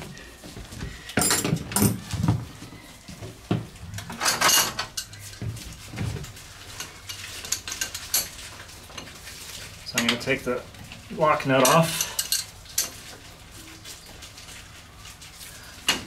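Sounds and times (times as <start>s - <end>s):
metal hand tools clinking: 11.6s - 13.0s.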